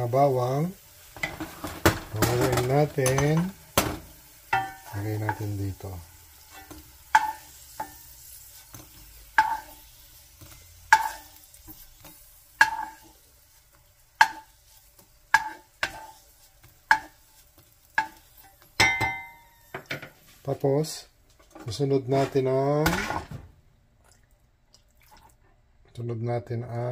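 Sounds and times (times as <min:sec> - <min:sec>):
spatula tapping glass bowl: 0:18.8 - 0:19.9.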